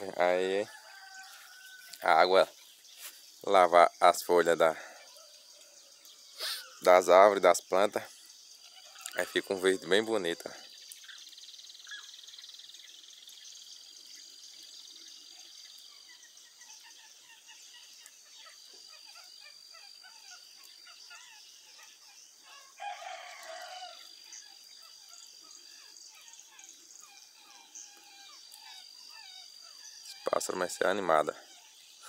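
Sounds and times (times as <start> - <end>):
rooster crowing: 0.0 - 2.4, 22.4 - 24.2
birds chirping: 0.0 - 32.0.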